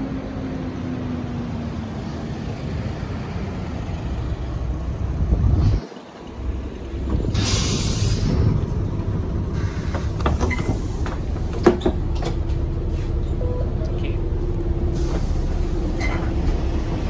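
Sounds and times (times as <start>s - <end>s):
bus diesel engine idling: 0.0s - 17.0s.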